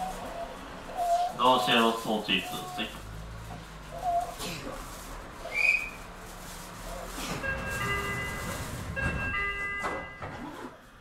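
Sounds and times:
low train rumble: 0:00.0 - 0:11.0
multi-tone chime: 0:07.5 - 0:10.2.

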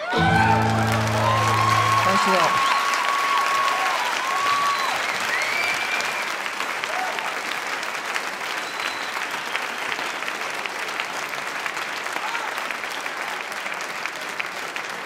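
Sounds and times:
crowd applauding: 0:00.0 - 0:15.0
whistles: 0:04.3 - 0:06.4, 0:08.5 - 0:09.8.

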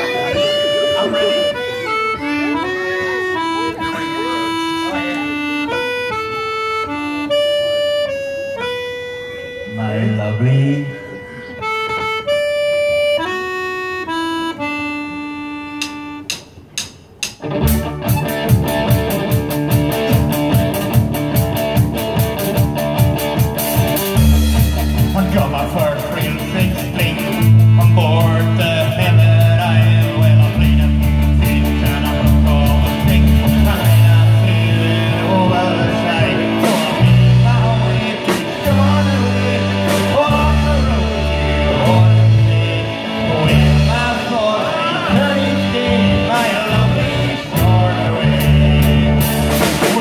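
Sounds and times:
accordion melody: 0:00.0 - 0:50.0
guitar: 0:00.0 - 0:50.0
heavy bass notes: 0:00.0 - 0:50.0
drums: 0:15.8 - 0:50.0.

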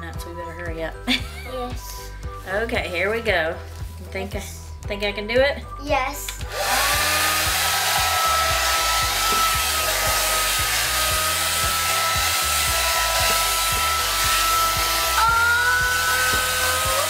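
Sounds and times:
hair dryer running: 0:06.4 - 0:17.0.

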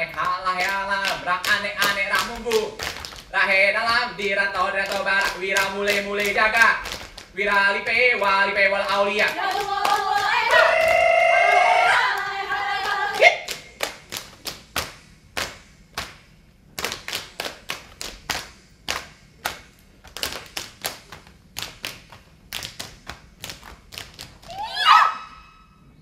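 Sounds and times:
singing voice: 0:00.0 - 0:13.6
dancers clapping and body slapping: 0:00.0 - 0:24.6.

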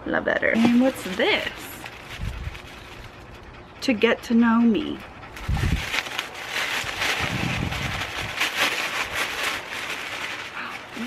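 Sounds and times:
tissue paper rustling: 0:00.6 - 0:03.2, 0:05.4 - 0:11.0.

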